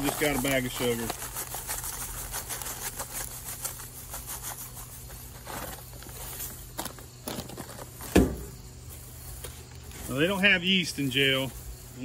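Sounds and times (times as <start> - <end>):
sugar grains pouring: 0.0 - 2.2
plastic bag crinkling: 0.0 - 8.0.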